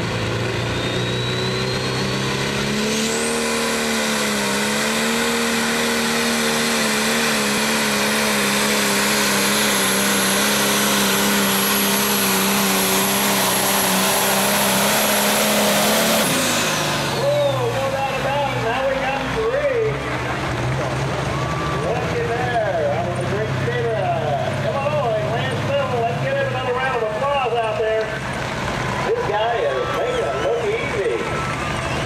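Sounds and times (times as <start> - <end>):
tractor diesel engine at full power: 0.0 - 32.0
turbo whistle: 0.7 - 3.6.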